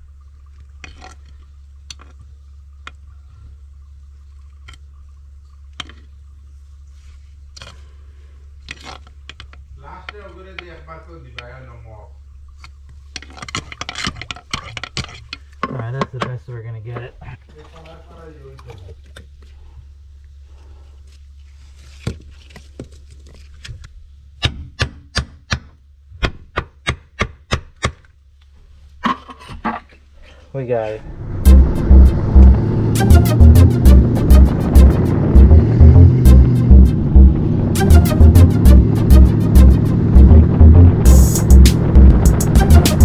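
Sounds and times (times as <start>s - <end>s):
low hum: 30.9s - 43.0s.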